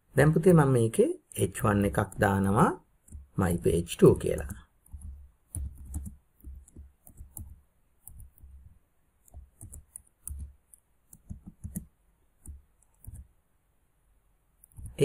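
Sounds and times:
typing on computer keyboard: 0:04.3 - 0:08.6, 0:09.2 - 0:13.3.

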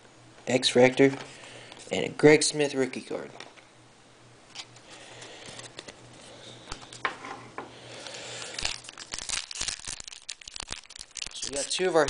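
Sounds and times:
foil wrapper crinkling and tearing: 0:08.0 - 0:12.0.

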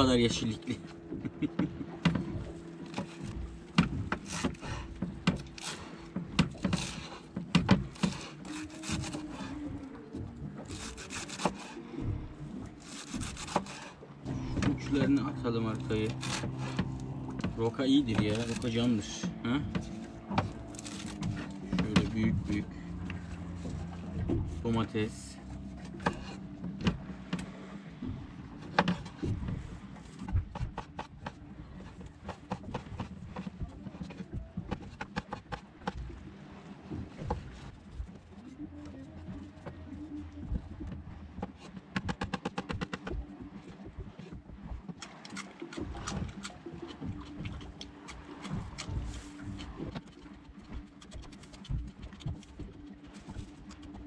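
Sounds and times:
steady low hum: 0:00.0 - 0:54.0
leaves rustling: 0:19.9 - 0:21.6.

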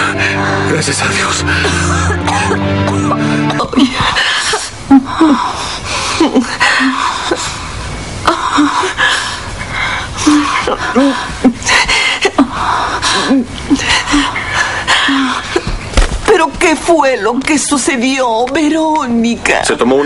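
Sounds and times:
woman sobbing: 0:01.4 - 0:16.5.

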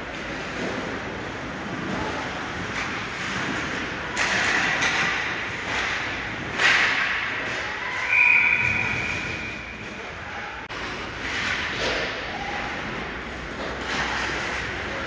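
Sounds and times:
skates scraping on ice: 0:00.1 - 0:09.4, 0:10.9 - 0:15.0
high whistle blast: 0:08.0 - 0:09.6.

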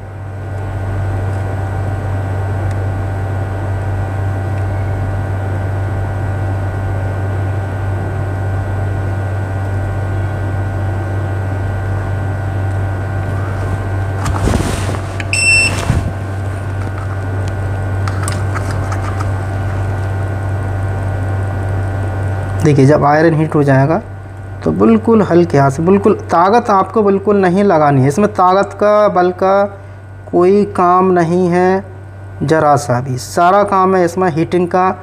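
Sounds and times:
low machine hum: 0:00.0 - 0:35.0
brief rustle: 0:14.2 - 0:17.0
short high beeps: 0:15.3 - 0:15.9.

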